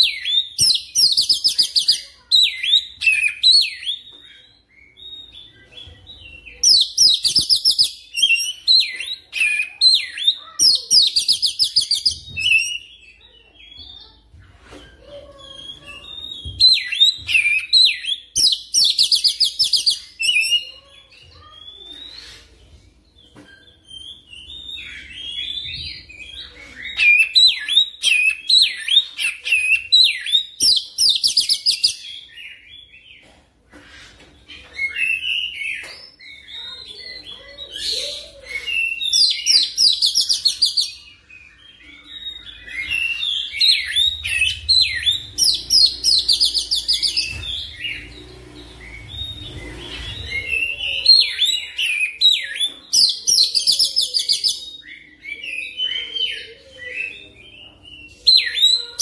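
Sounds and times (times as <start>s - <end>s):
bird singing whistles and chirps: 14.8s - 33.0s, 34.5s - 59.0s.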